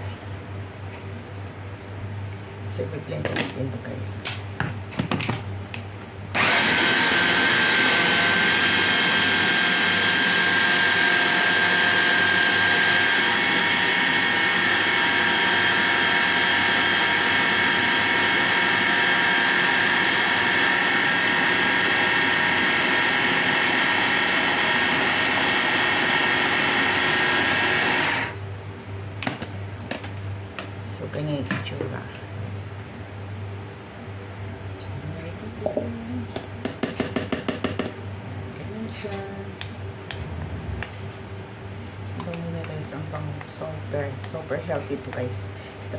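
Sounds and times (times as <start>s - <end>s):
electric food chopper whine: 6.3s - 28.4s.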